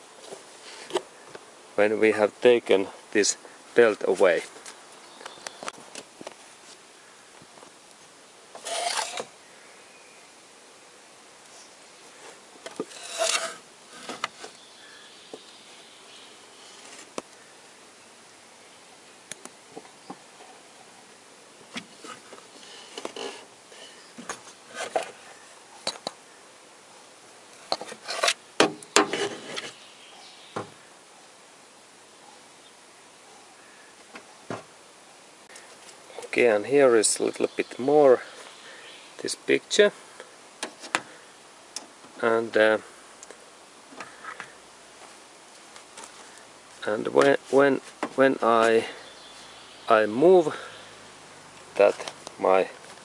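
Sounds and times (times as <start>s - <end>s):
rubbing scraping sounds: 8.6s - 9.3s, 12.2s - 14.6s, 21.9s - 25.2s, 27.6s - 28.4s, 29.0s - 29.8s.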